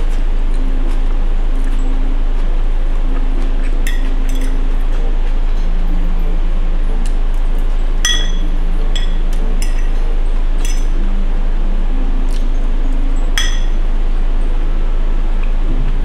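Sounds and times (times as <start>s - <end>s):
steady low hum: 0.0s - 16.0s
utensil clinking against plate: 3.9s - 4.7s, 8.1s - 11.0s, 13.4s - 13.8s.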